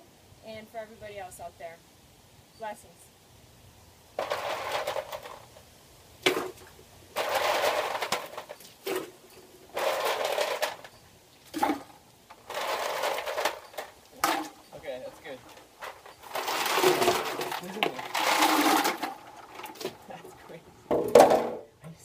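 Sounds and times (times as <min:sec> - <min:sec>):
ice cubes clattering: 0:04.2 - 0:05.5, 0:07.2 - 0:10.9, 0:11.5 - 0:21.4.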